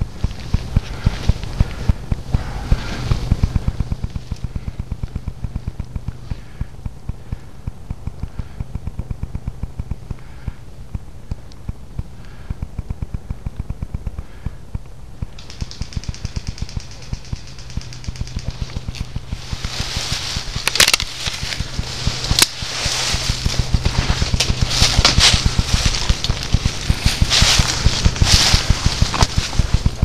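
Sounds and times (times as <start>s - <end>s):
high-pitched rattle: 0.0s - 30.0s
footsteps in leaf litter: 18.5s - 30.0s.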